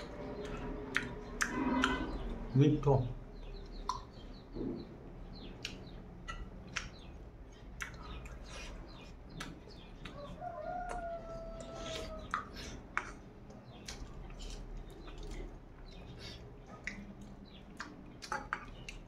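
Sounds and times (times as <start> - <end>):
faint clicks of eating: 0.0 - 2.2, 3.5 - 4.4, 5.4 - 19.0
rooster crowing: 10.1 - 12.3.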